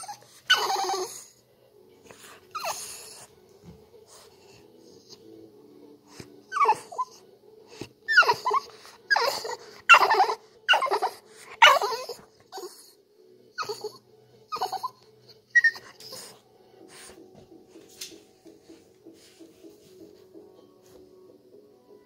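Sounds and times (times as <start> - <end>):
dog whimpering: 0.0 - 1.3, 2.5 - 3.3, 6.1 - 13.0, 13.6 - 16.4.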